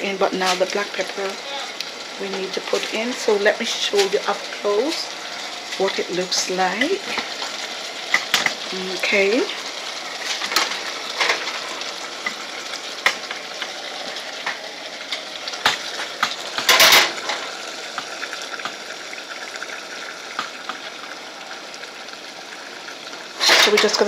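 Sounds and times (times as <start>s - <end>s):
vegetables sizzling in oil: 0.0s - 24.0s
pan scraping: 10.2s - 12.4s, 23.4s - 24.0s.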